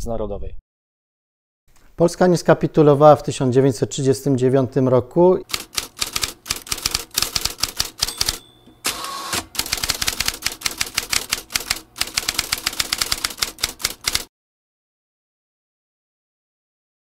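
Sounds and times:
typewriter carriage whir: 5.4 - 14.3
typewriter key clacks: 5.5 - 8.6, 9.4 - 14.3
typewriter bell ring: 5.5 - 14.2.

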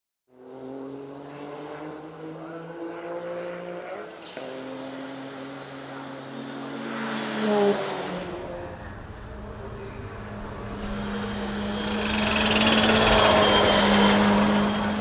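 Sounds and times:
race car engine passing: 0.3 - 15.0
harsh engine rasp: 10.4 - 15.0.

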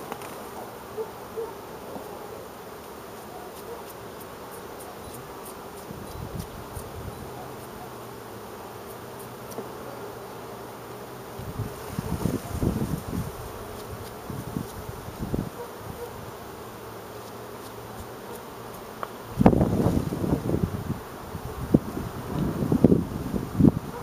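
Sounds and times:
hive frame handling noise: 0.0 - 0.9, 2.7 - 10.2, 11.5 - 20.8
bees buzzing: 0.0 - 24.0.

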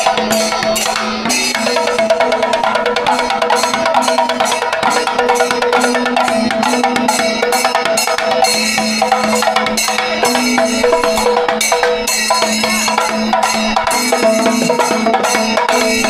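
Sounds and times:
barrel drums beating: 0.0 - 16.0
hand cymbals clashing: 0.0 - 16.0.

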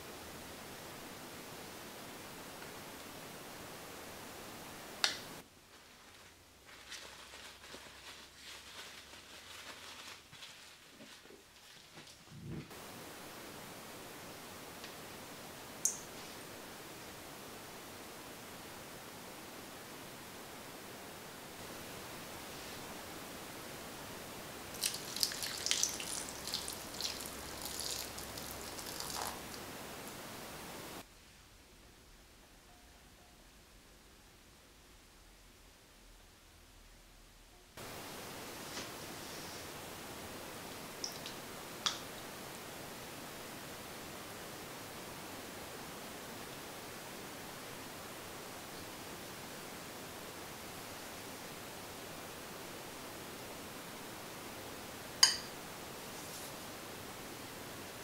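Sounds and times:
faint steady hiss: 0.0 - 58.0
cling film crinkling: 5.7 - 12.2
milk pouring and splashing: 24.7 - 29.7.

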